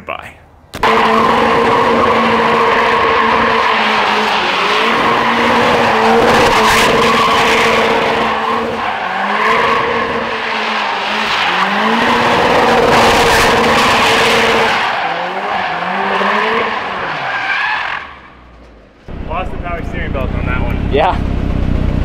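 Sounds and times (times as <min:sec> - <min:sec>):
tires screeching: 0:00.7 - 0:22.0
car engine at high revs: 0:00.8 - 0:17.3.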